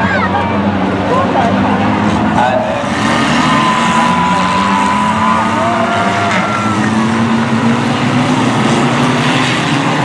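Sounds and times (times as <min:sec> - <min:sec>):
small car engines racing: 0:00.0 - 0:10.0
high squeal sliding in pitch: 0:02.4 - 0:07.1.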